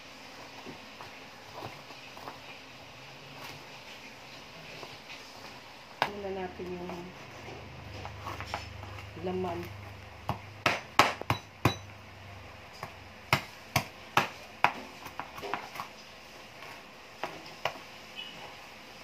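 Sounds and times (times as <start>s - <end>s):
knife chopping on plastic board: 10.2s - 11.9s, 12.8s - 15.9s.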